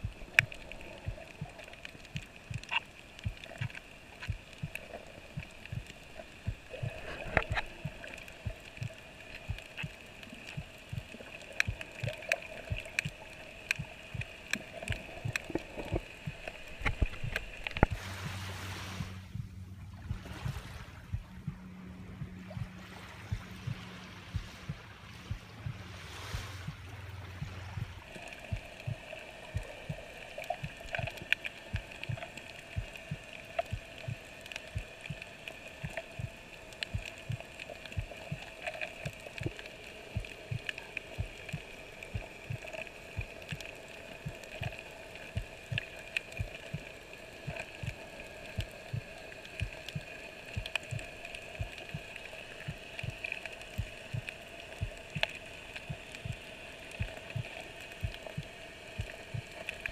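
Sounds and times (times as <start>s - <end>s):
faint clicks: 0.0s - 18.0s, 27.8s - 59.9s
underwater two-toned hum: 0.0s - 59.9s
water washing at shoreline: 0.0s - 59.9s
low underwater thuds: 10.5s - 31.0s, 39.4s - 59.9s.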